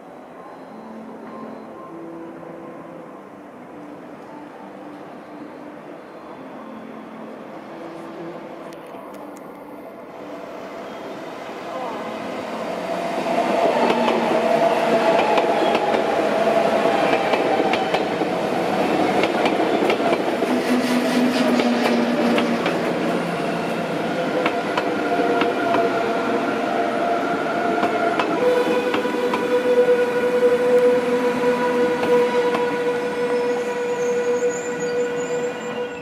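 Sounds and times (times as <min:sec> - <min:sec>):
steady whistle-like tone: 0:10.8 - 0:11.4, 0:33.2 - 0:36.0.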